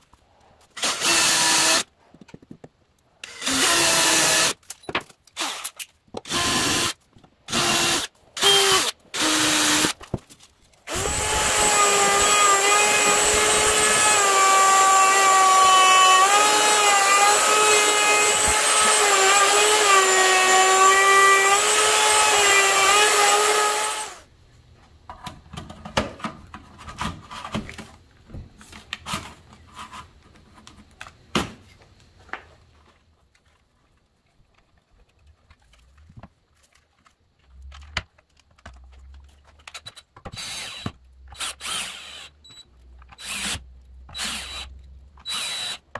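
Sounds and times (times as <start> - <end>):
cordless drill driving screws: 0.8 - 1.8, 3.2 - 4.6, 5.4 - 10.0, 10.9 - 24.2, 40.3 - 45.8
wood router cutting: 0.8 - 1.8, 10.9 - 24.2, 43.2 - 43.6, 45.3 - 45.8
faint clicks and handling noise: 24.6 - 40.4.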